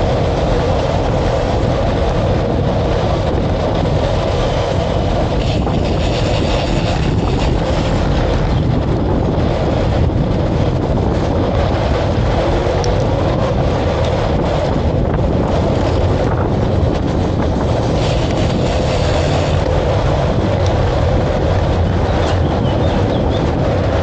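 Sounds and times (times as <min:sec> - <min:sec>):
rumble of travel at speed: 0:00.0 - 0:24.0
wind on microphone: 0:00.0 - 0:24.0.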